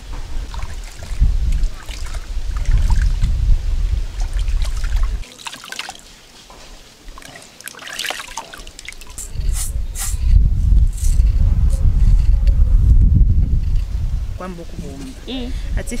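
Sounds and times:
water sloshing in plastic basin: 4.2s - 9.2s
low rumble: 9.4s - 14.9s.

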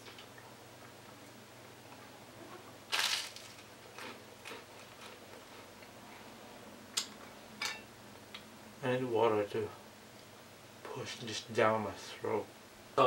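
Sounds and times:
crunchy bite: 2.9s - 5.2s
person chewing food: 3.0s - 6.2s.

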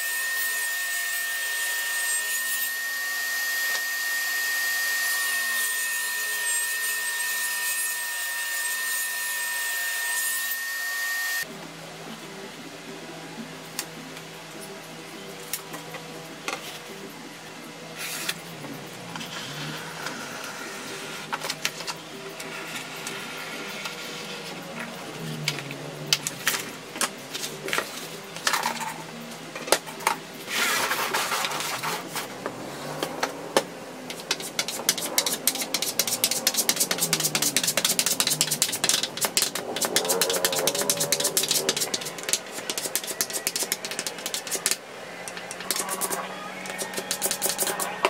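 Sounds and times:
soft background music: 11.4s - 48.0s
utility knife along straightedge: 34.1s - 47.9s
glue scraping on plywood: 34.2s - 44.8s.

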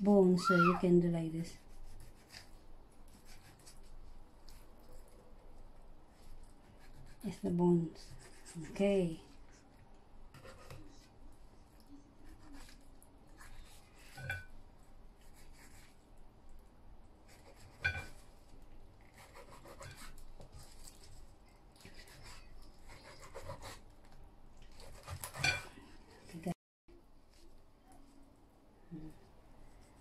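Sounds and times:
knife scraping fish bones: 19.0s - 21.2s.

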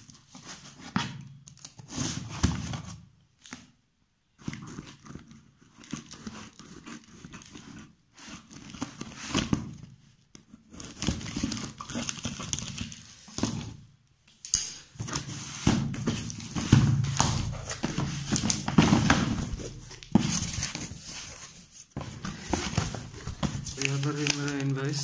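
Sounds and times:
paper crinkling: 10.5s - 13.8s, 15.0s - 25.0s
cardboard box flaps rustling: 15.1s - 24.4s.

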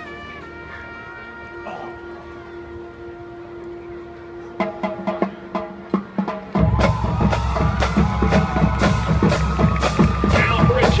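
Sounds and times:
horns holding notes: 0.0s - 11.0s
marching band: 0.0s - 11.0s
bass drum and snare beat: 6.4s - 11.0s.

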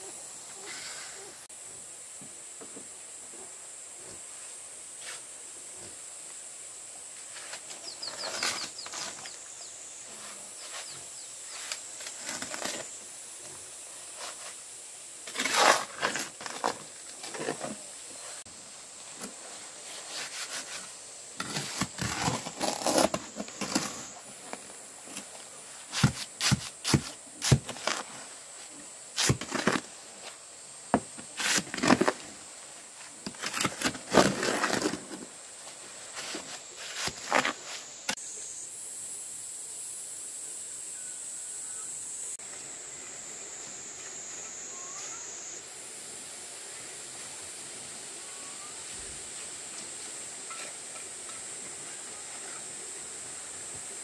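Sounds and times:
steady high-pitched hiss: 0.0s - 54.0s
knocks and scrapes of building work: 7.2s - 9.5s, 10.1s - 14.6s, 15.2s - 38.2s, 49.4s - 51.6s.

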